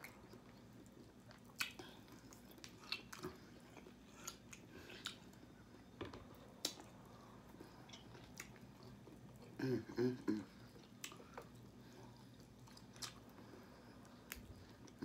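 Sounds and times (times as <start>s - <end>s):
chewing and tearing meat: 0.0s - 5.5s, 10.7s - 15.0s.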